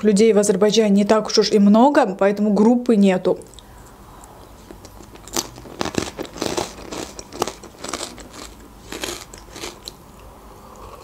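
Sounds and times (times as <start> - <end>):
crunching croutons: 4.6 - 10.0.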